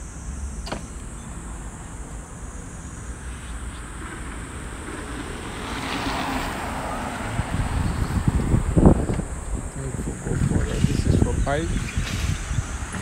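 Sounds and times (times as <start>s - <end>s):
car passing by: 3.1s - 13.0s
steady low rumble: 7.3s - 13.0s.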